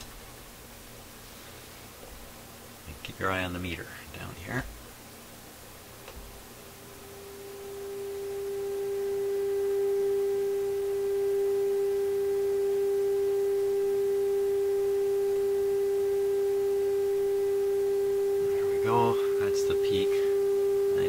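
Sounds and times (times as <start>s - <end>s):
steady test tone from radio speaker: 6.7s - 21.0s.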